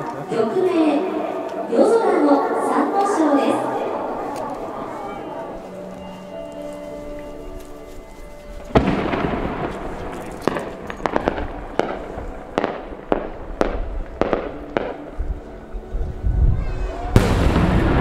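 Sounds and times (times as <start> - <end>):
firework bangs echoing: 8.7 - 15.1, 17.2 - 18.0.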